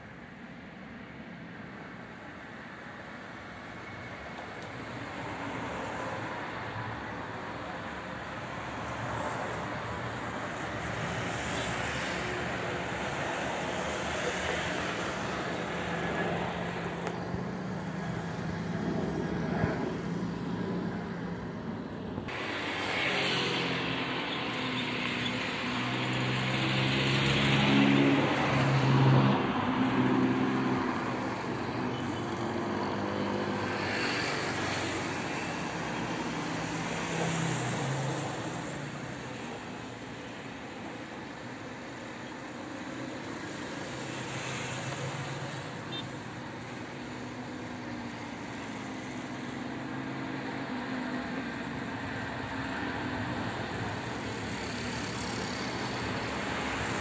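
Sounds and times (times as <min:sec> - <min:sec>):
road vehicles passing: 0:00.0 - 0:57.0.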